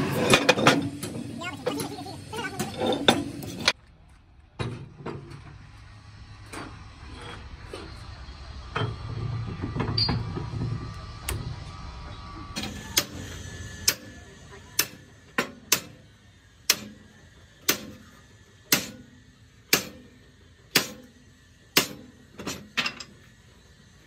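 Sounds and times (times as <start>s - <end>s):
rumbling and knocking of axle: 0.0s - 11.7s
hammer striking steel: 12.6s - 14.2s, 14.8s - 16.0s, 16.6s - 18.1s, 18.7s - 19.1s, 19.7s - 23.0s.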